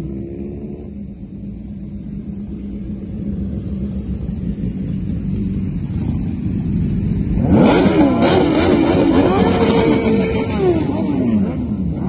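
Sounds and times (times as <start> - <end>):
motorcycles rolling past: 0.0 - 12.0.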